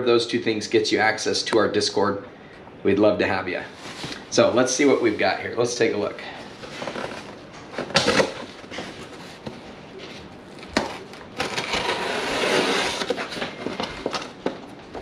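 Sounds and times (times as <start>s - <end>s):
knife slitting packing tape: 10.8s - 14.3s.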